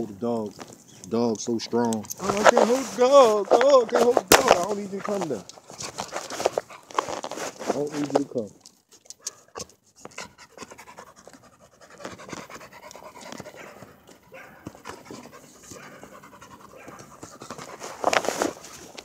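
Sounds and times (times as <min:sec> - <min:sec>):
dog panting: 0:09.2 - 0:18.5.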